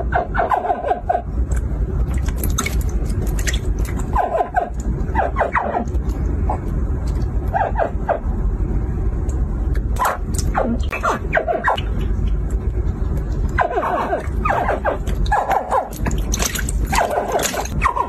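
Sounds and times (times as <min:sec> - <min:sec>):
steady low hum: 0:00.0 - 0:18.0
hatchling crocodiles chirping: 0:10.0 - 0:12.4.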